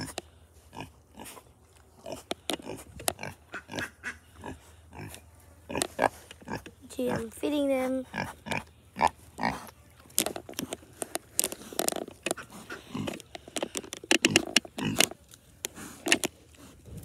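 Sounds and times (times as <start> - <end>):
pigs grunting: 0.0 - 7.4, 8.0 - 17.0
chewing and smacking: 9.4 - 17.0.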